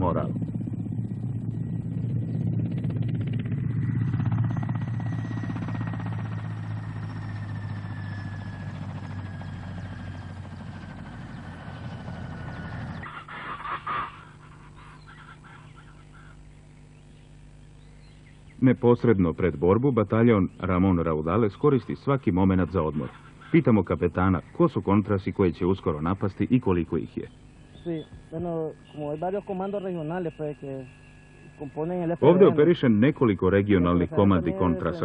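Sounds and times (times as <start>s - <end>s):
helicopter rotor chop and turbine: 0.0s - 16.4s, 18.7s - 35.0s
jungle background: 0.0s - 35.0s
bird call: 9.8s - 18.6s, 27.2s - 32.3s.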